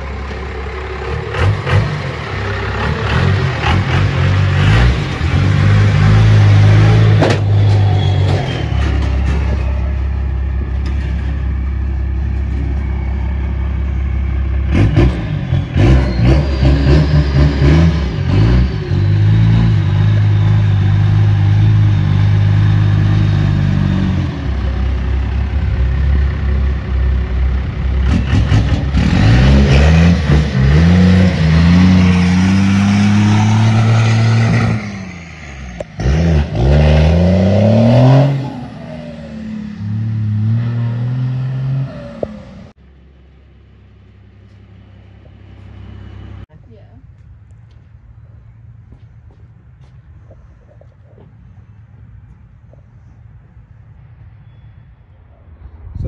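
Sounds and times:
diesel truck engine revving: 0.0s - 42.9s.

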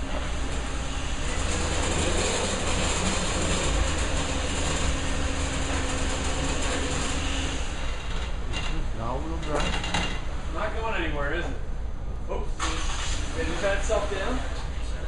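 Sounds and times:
whir of tyres on rollers: 0.0s - 8.4s
low engine rumble: 6.7s - 12.6s.

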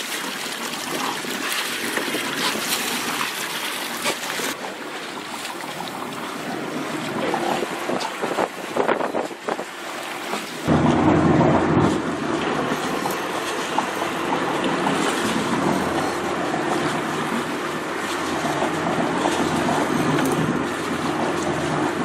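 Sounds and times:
water splashing against boat: 0.0s - 22.0s
wind buffeting microphone: 6.2s - 22.0s
low rumble: 10.6s - 22.0s.

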